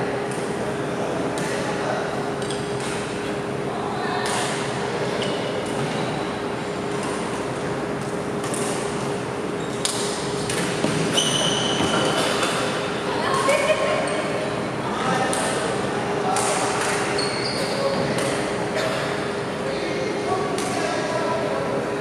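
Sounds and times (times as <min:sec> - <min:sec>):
steady hum: 0:00.0 - 0:22.0
shoe squeaking on wooden floor: 0:11.1 - 0:12.2, 0:17.2 - 0:17.9
rackets striking shuttlecock: 0:18.1 - 0:18.5.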